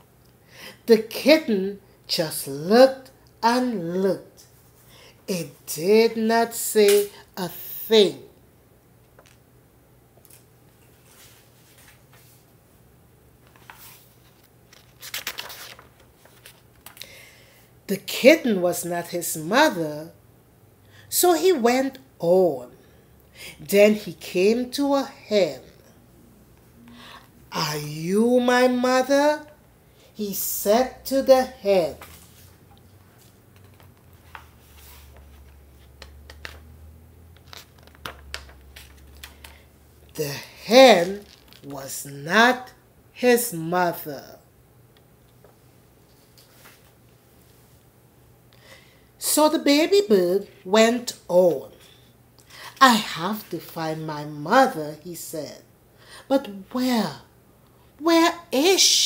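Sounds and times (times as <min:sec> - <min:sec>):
faint steady hum: 0:00.0 - 0:59.0
paper pages rustling: 0:09.1 - 0:09.4, 0:10.2 - 0:12.5, 0:13.4 - 0:17.0, 0:31.9 - 0:36.7, 0:37.3 - 0:39.7, 0:41.0 - 0:41.7, 0:45.4 - 0:47.6.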